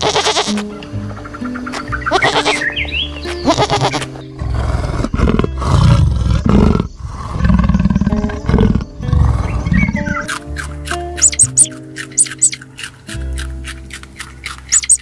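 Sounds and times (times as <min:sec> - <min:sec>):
goat bleating: 0:00.0 - 0:00.7, 0:02.1 - 0:04.2
light background music: 0:00.0 - 0:15.0
big cat rasping roars: 0:04.4 - 0:10.1.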